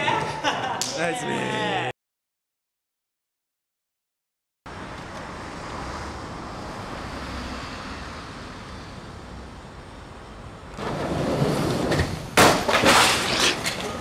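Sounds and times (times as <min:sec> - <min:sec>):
city traffic hiss: 0:04.7 - 0:10.8.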